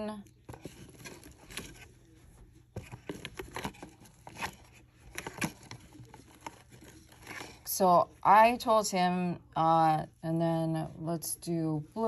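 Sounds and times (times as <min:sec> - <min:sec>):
gloved hands handling small jars: 0:00.0 - 0:07.8.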